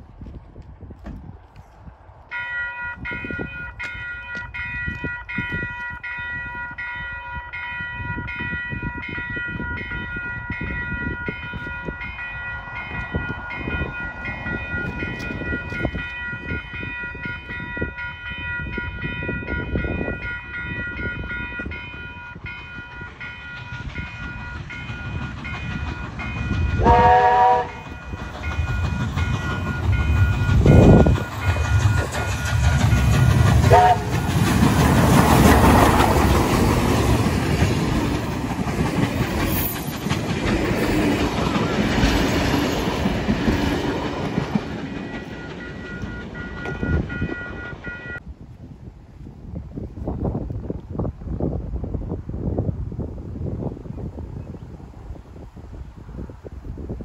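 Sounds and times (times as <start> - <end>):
train rumble: 0.0 - 57.0
level crossing bells ringing: 2.3 - 27.1, 45.0 - 48.2
train whistle blast: 26.8 - 28.0, 33.6 - 34.3.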